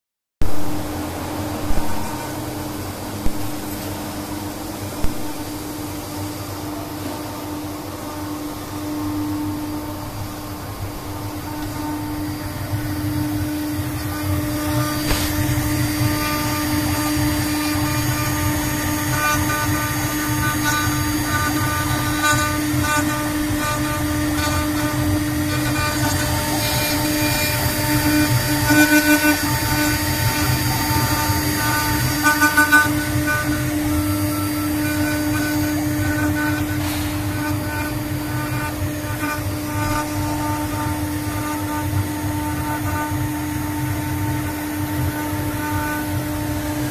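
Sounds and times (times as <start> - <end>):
cnc router spindle whining: 0.4 - 46.9
bit cutting wood: 11.4 - 46.7.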